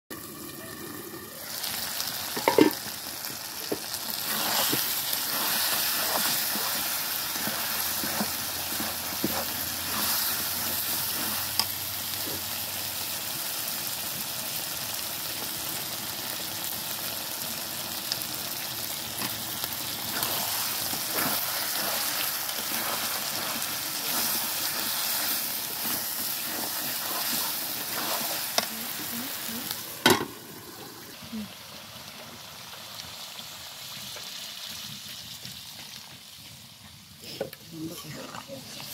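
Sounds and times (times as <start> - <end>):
curry sizzling in metal pot: 0.1 - 36.4, 37.0 - 38.9
ladle scraping pot: 2.4 - 2.9, 4.2 - 11.7, 20.1 - 29.1.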